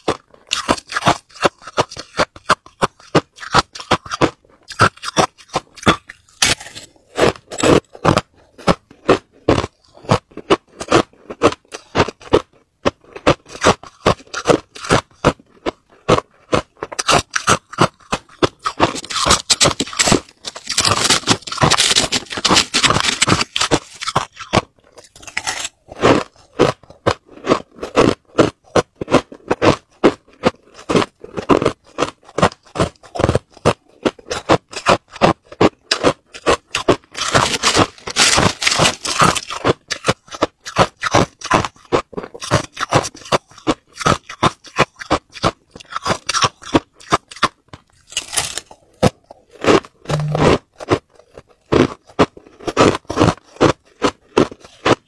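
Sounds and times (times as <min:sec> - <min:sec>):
ice being chewed: 0:00.0 - 0:55.0
spoon scraping crushed ice: 0:16.9 - 0:26.5, 0:36.3 - 0:41.4, 0:50.1 - 0:50.5.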